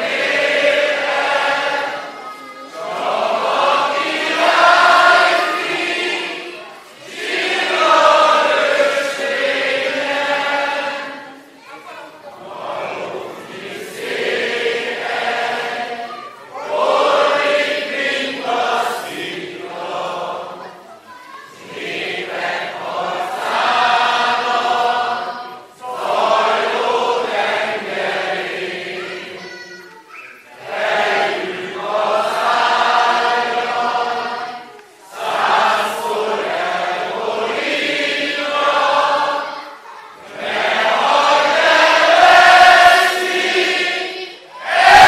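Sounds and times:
crowd singing unaccompanied: 0.0s - 11.6s, 12.2s - 29.8s, 30.5s - 45.0s.

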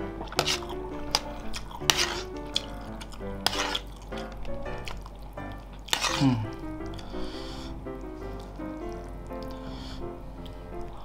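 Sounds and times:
background music: 0.0s - 11.0s
metal spoon scraping metal tray: 0.3s - 2.7s, 3.4s - 3.9s.

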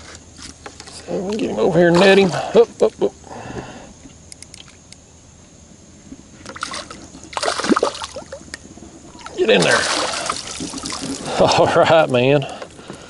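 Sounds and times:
fish splashing in water: 6.5s - 8.5s, 9.1s - 11.4s.

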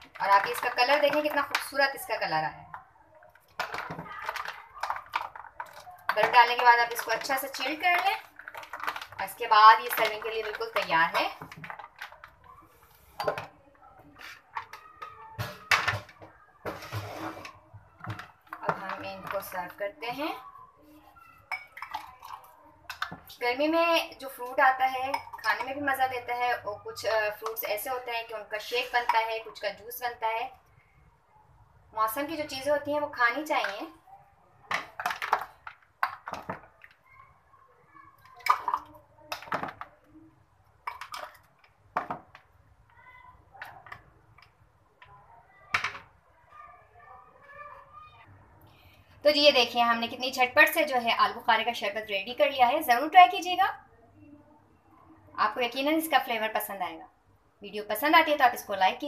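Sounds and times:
ladle stirring ice cubes: 3.3s - 19.8s, 21.4s - 26.3s, 34.7s - 37.0s, 38.1s - 39.9s, 40.7s - 44.5s
ice clinking against a bowl: 38.3s - 39.8s.

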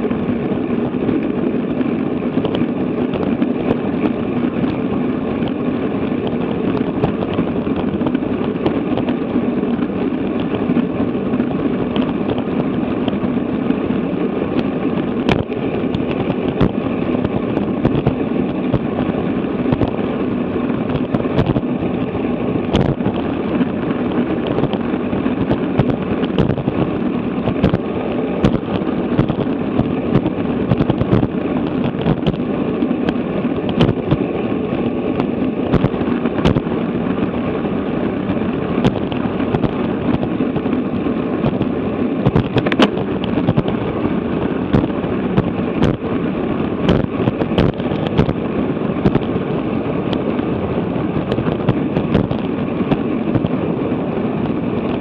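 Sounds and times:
wind rushing over microphone: 0.0s - 55.0s
sharp clicks and knocks: 27.4s - 32.4s, 41.4s - 43.8s.

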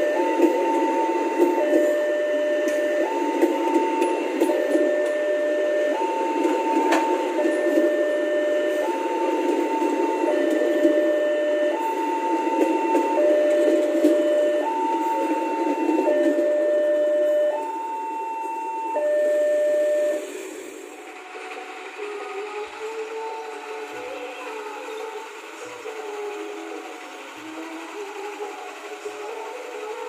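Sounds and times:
two-tone electronic warning signal: 0.0s - 20.3s
train coaches rolling past: 0.0s - 30.0s.

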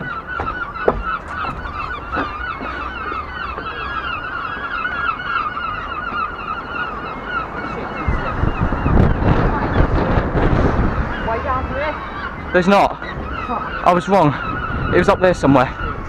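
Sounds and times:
seagulls calling: 0.0s - 16.0s
wind buffeting microphone: 0.0s - 16.0s.

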